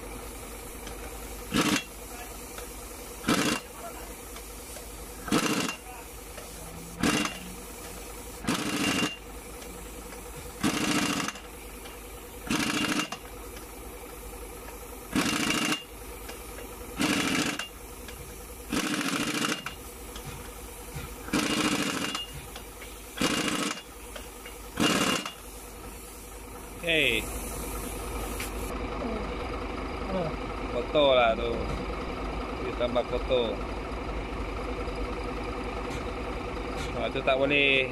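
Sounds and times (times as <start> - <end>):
pneumatic impact wrench bursts: 0.0 - 28.7
steady hum: 0.0 - 32.8.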